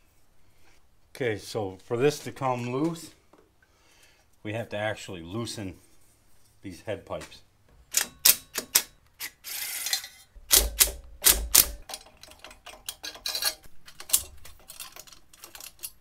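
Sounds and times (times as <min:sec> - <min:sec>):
scrape: 0:05.7 - 0:06.6
ratchet wrench clicking: 0:08.0 - 0:12.0
hand tools clinking on metal: 0:11.5 - 0:16.0.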